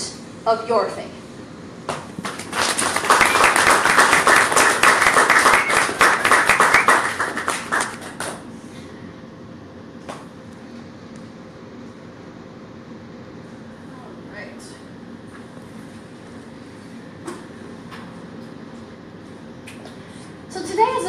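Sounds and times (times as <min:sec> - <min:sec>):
audience clapping: 0:02.2 - 0:08.4.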